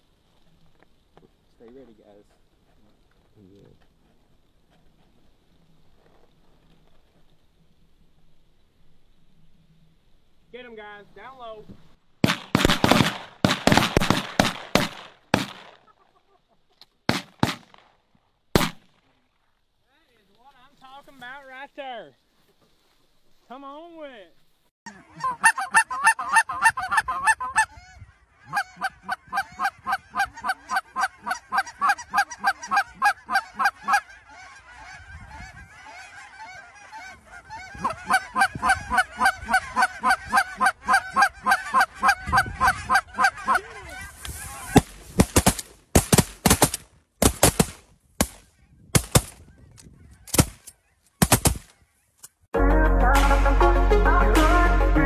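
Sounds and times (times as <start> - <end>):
shotgun shots: 12.2 - 15.8, 17.1 - 17.9, 18.6 - 19.0, 44.6 - 49.4, 50.3 - 51.7
geese honking: 24.9 - 45.2.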